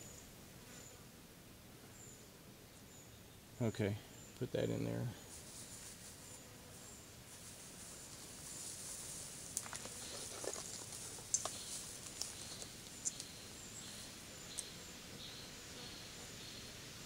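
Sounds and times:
dry grass rustling and crackling: 0:05.3 - 0:14.7.

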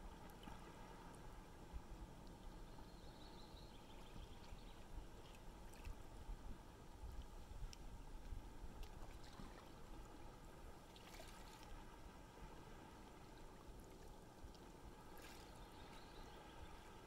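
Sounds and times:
sea water lapping at shore: 0:00.0 - 0:02.4, 0:04.2 - 0:17.0.

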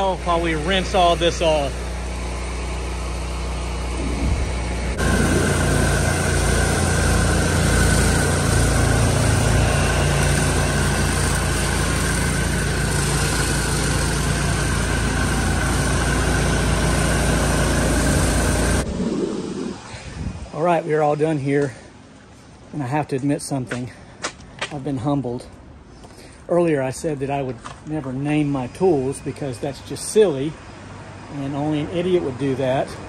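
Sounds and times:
pressure washer spraying concrete: 0:00.0 - 0:18.9.

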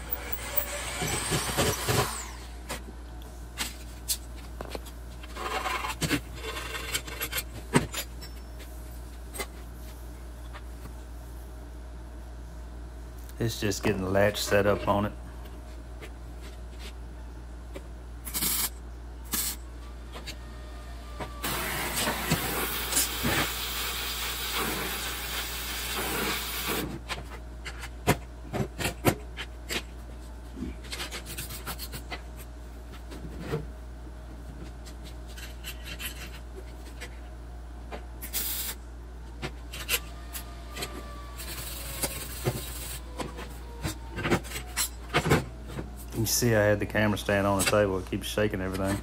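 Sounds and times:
welder buzzing: 0:00.0 - 0:02.6, 0:20.8 - 0:26.8.

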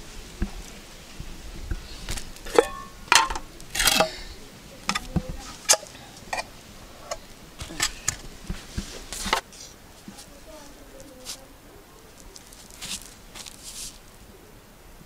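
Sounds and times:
metal pots and dishes clinking: 0:02.5 - 0:08.2.

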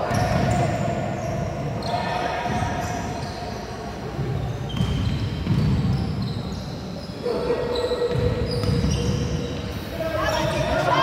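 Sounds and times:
sneakers squeaking: 0:00.0 - 0:11.0
basketball bouncing: 0:04.2 - 0:06.0, 0:08.1 - 0:09.3.

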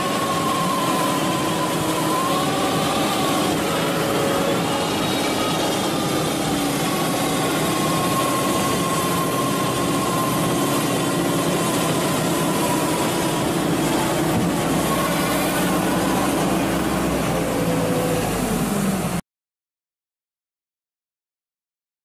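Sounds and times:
loader engine drone: 0:00.0 - 0:19.2
thin steady whine: 0:00.0 - 0:19.2.

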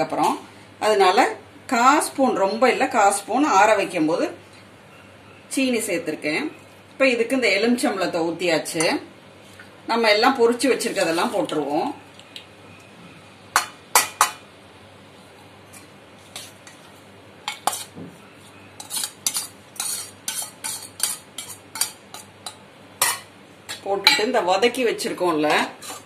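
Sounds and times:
spoon clinking and scraping steel bowl: 0:17.5 - 0:17.9, 0:18.7 - 0:24.3, 0:25.4 - 0:26.0.

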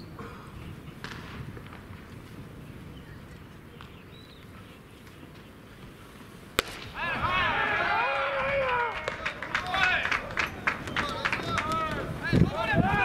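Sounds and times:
high bird chirp: 0:02.9 - 0:05.0.

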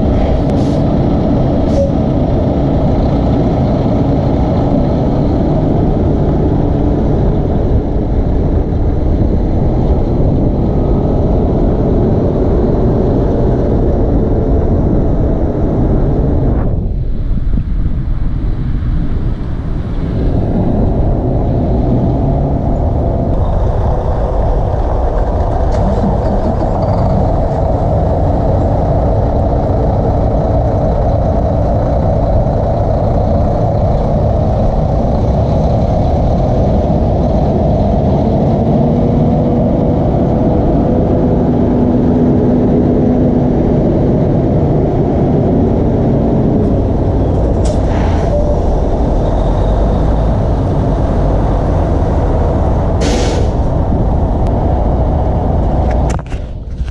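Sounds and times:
truck diesel engine rumbling: 0:00.0 - 0:56.9.

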